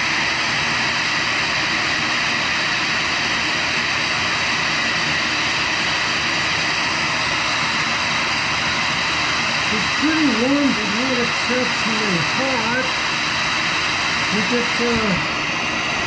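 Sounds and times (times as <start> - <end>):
shop vacuum running: 0.0 - 16.0.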